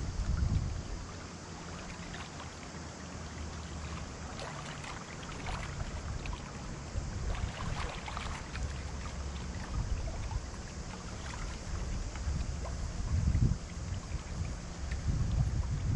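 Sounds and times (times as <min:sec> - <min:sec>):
waves lapping on pebbles: 0:01.5 - 0:09.8.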